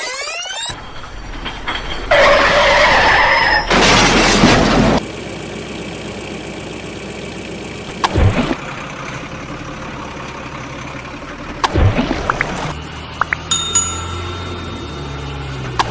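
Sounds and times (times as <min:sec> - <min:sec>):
engine-like idling hum: 0:05.0 - 0:15.9.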